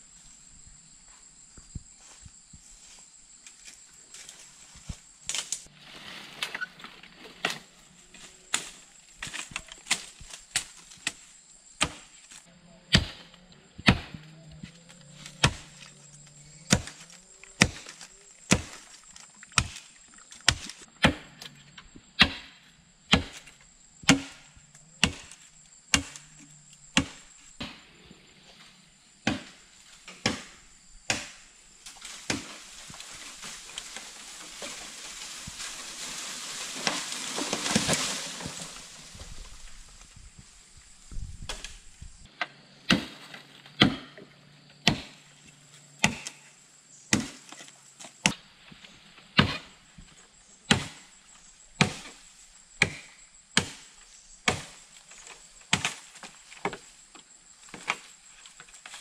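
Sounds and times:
bamboo falling through leaves: 3.6 - 12.4, 16.6 - 21.2, 29.3 - 42.2
machete chopping bamboo: 8.5 - 12.2, 12.9 - 14.3, 15.3 - 15.7, 16.6 - 18.9, 19.5 - 21.4, 22.2 - 23.5, 24.1 - 26.4, 27.0 - 27.8, 29.2 - 34.9, 42.9 - 44.2, 44.8 - 45.2, 46.0 - 46.4, 47.1 - 47.6, 48.2 - 48.4, 49.4 - 49.7, 50.7 - 51.1, 51.8 - 52.2, 52.8 - 54.8, 55.7 - 56.9.

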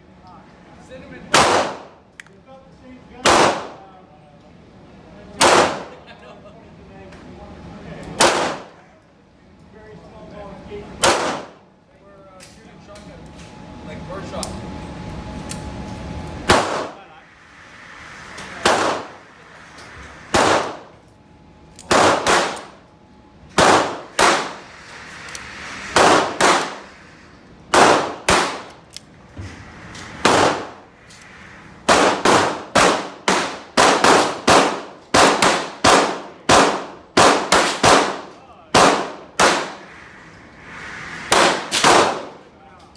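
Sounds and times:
pistol shots echoing indoors: 1.3 - 2.0, 3.2 - 3.8, 5.3 - 6.0, 8.2 - 8.8, 11.0 - 11.6, 16.4 - 17.1, 18.4 - 21.1, 21.7 - 22.9, 23.5 - 27.0, 27.7 - 29.0, 30.1 - 30.9, 31.8 - 39.9, 41.3 - 42.4.

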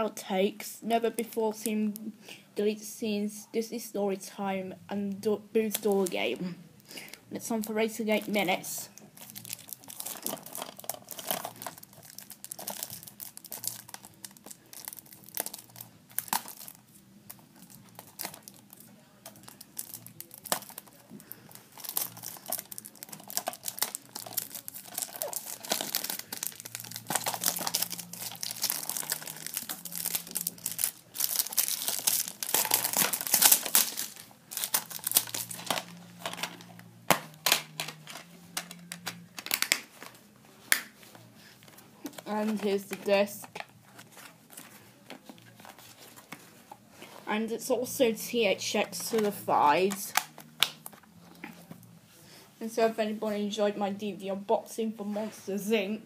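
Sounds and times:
shrink wrap tearing and crinkling: 7.5 - 40.2, 48.6 - 51.9.

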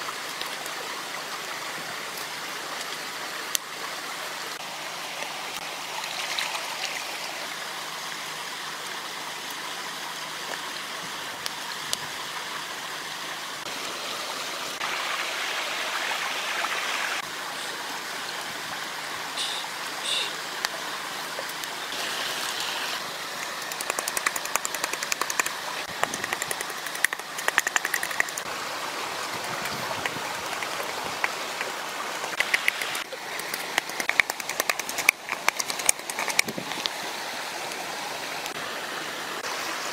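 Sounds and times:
stream running over rocks: 0.0 - 39.9
sharp clicks and taps: 23.4 - 28.5, 29.5 - 31.7, 32.4 - 36.9.

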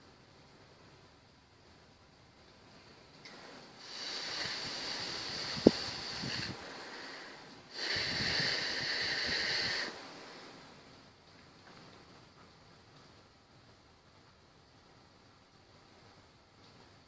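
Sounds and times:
breath blowing out: 3.8 - 10.7.

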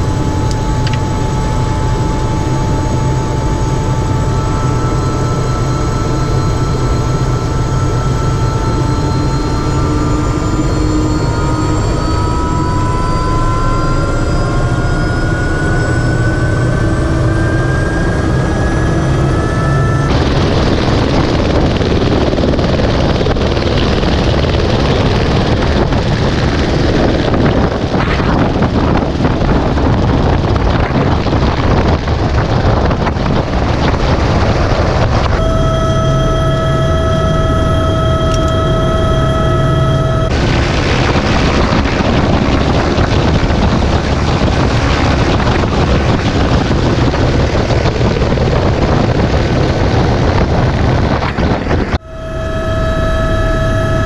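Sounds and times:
helicopter turbine whine rising: 0.0 - 54.0
loud helicopter rotor noise: 0.0 - 54.0
wind rushing over microphone: 0.0 - 54.0.

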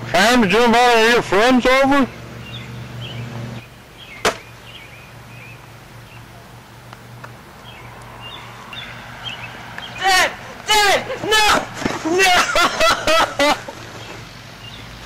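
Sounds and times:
small birds chirping: 1.7 - 11.2, 13.7 - 15.0
sharp smack: 4.2 - 4.4.

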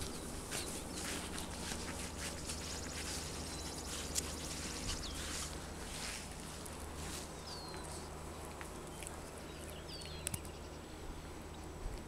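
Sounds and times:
puppies scampering on grass: 0.0 - 10.6
light clicks: 10.0 - 10.6.

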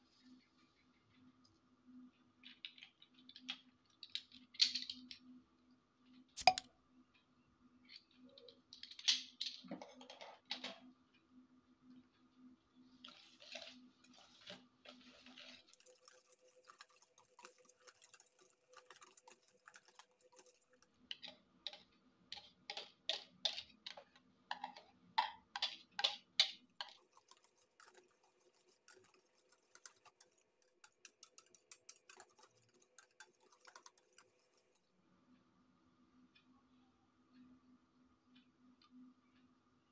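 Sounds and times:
whisk clicking against metal bowl: 15.4 - 34.8.

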